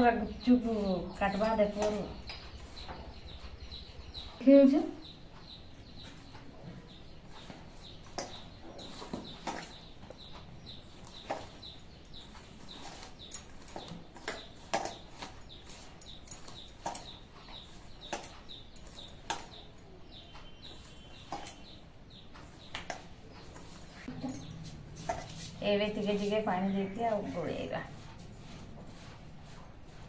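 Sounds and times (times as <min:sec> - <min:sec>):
birds chirping: 0:00.0 - 0:30.0
bangles clinking while kneading: 0:11.0 - 0:19.8, 0:20.7 - 0:21.8, 0:22.7 - 0:26.2.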